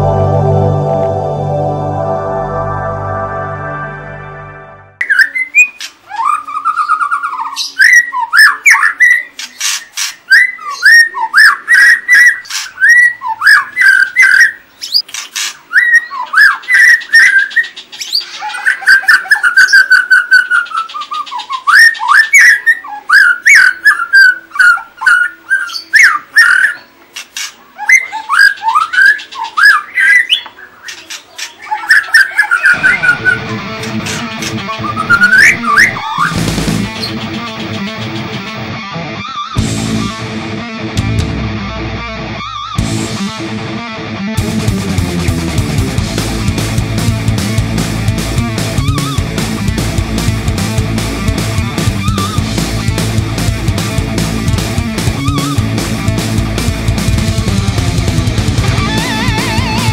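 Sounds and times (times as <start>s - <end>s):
bird singing whistled phrases: 5.0s - 15.0s, 15.7s - 26.9s, 27.8s - 33.6s, 34.7s - 36.4s.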